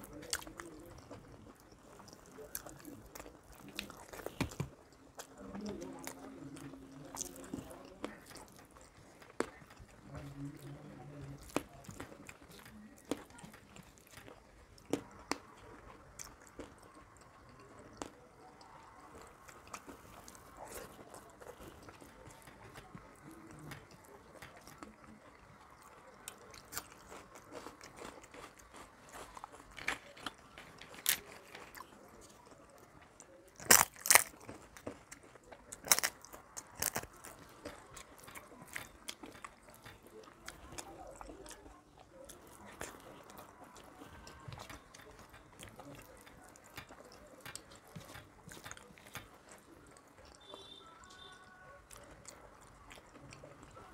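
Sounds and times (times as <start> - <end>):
soft chewing: 0.0 - 53.9
crisp crunches: 33.5 - 39.7.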